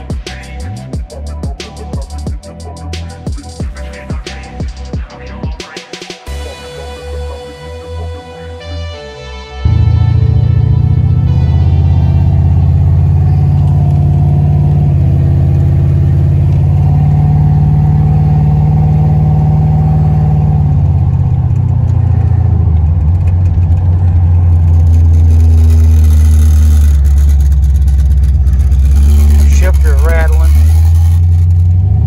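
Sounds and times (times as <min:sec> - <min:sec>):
car engine running: 0:09.6 - 0:32.0.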